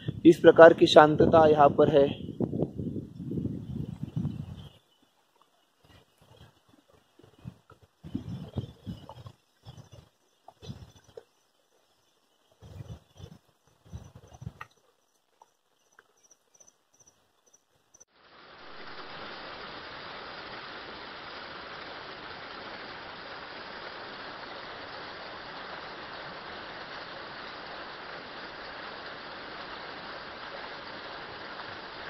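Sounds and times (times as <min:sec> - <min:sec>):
high insect chirps: 0:03.3 - 0:18.1
waterfall rushing and splashing: 0:18.2 - 0:32.0.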